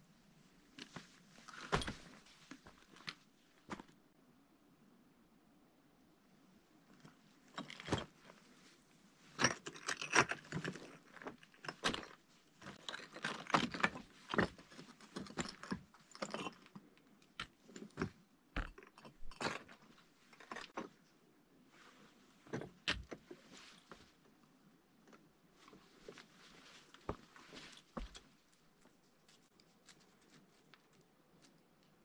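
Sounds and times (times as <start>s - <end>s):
footsteps on loose rock rubble: 9.4s - 16.8s, 17.4s - 20.8s, 26.7s - 28.3s.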